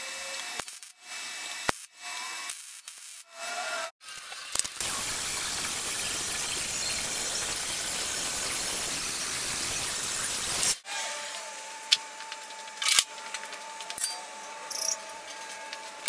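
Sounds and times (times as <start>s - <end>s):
angle grinder grinding metal: 3.2s - 16.0s.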